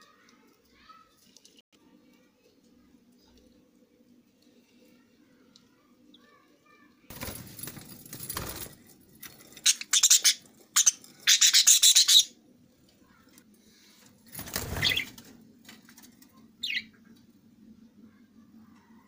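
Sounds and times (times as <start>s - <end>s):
budgerigars chirping harshly: 9.6s - 12.4s, 14.7s - 15.1s.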